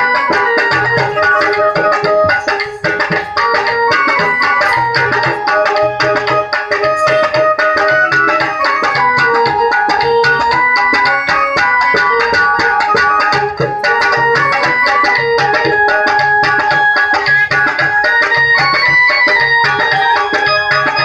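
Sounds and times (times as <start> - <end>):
electronic keyboard melody: 0.0 - 21.0
hand drum rhythm: 0.0 - 21.0.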